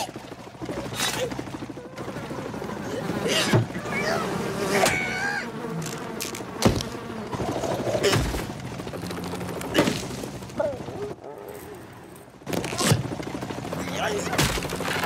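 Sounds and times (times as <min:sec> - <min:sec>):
insect buzzing: 0:03.0 - 0:10.1.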